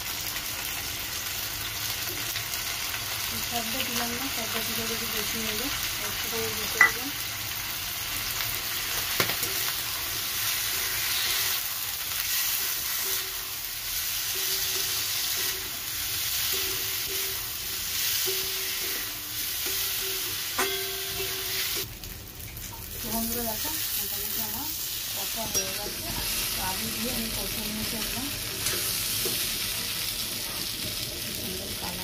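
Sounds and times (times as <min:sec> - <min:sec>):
chicken sizzling in wok: 0:00.0 - 0:32.0
metal spatula stirring: 0:16.5 - 0:21.9.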